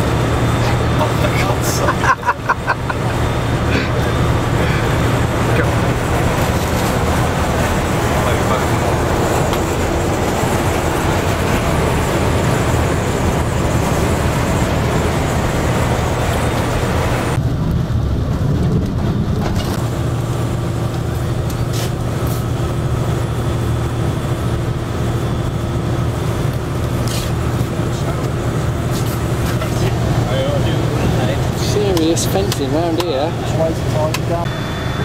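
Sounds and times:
tyre and road rumble: 0.0s - 23.2s
coach engine drone: 0.0s - 35.0s.

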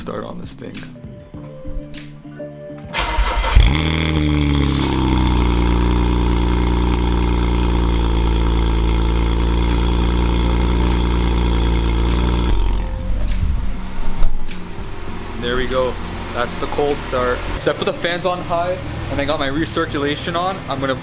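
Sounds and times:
car engine starting and idling: 2.9s - 21.0s
starter motor cranking: 3.0s - 12.9s.

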